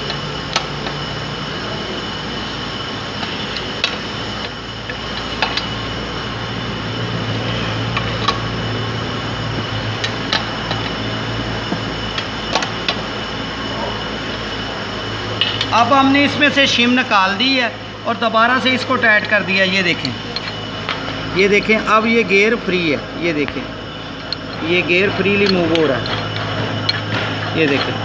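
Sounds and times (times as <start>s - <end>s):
steady hum: 0.0s - 28.0s
socket wrench turning bolts: 20.3s - 20.6s.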